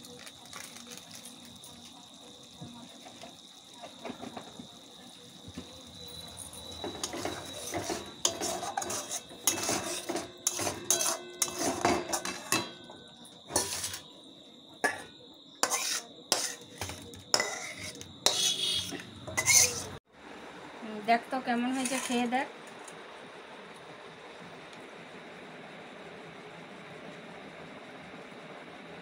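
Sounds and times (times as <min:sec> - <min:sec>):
metal spoon scraping and clinking: 0:06.2 - 0:12.9, 0:13.5 - 0:14.1, 0:14.8 - 0:20.0, 0:21.7 - 0:22.3.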